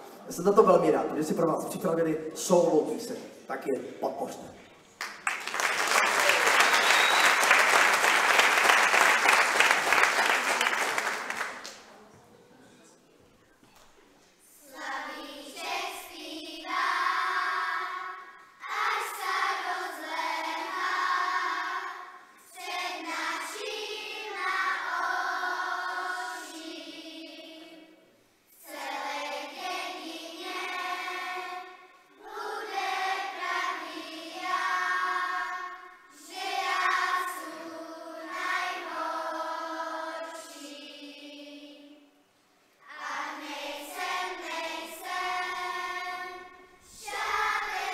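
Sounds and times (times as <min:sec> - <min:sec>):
children's choir singing: 0:14.4 - 0:47.9.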